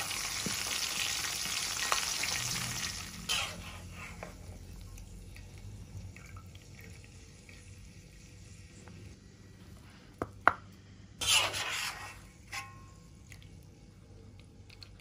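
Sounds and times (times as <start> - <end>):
skimmer scraping wok: 2.7 - 4.6, 11.2 - 13.0.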